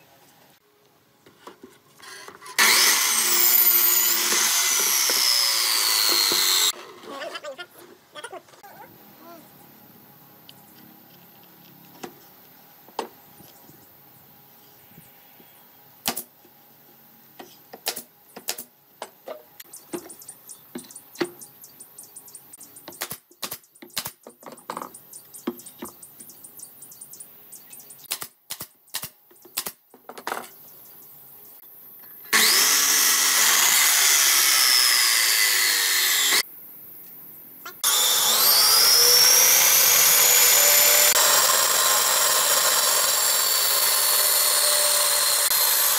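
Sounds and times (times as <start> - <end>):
band saw cutting boards: 2.0 - 6.9, 32.3 - 36.4, 37.8 - 45.9.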